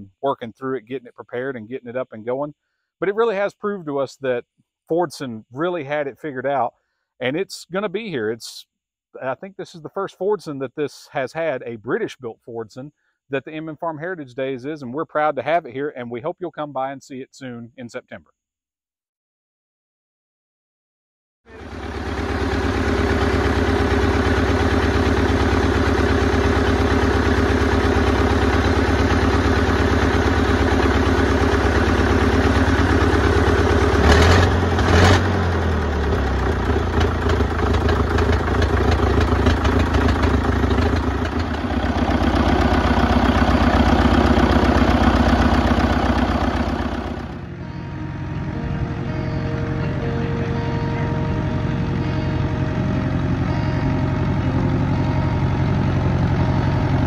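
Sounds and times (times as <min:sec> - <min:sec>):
tractor diesel engine running: 0:21.5 - 0:57.0.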